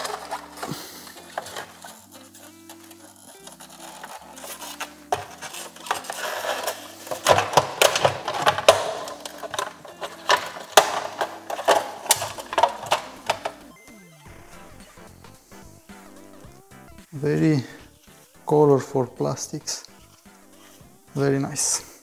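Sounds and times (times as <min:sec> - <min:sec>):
plastic parts clicking and snapping: 0:00.0 - 0:13.7
plastic scraping: 0:00.0 - 0:13.7.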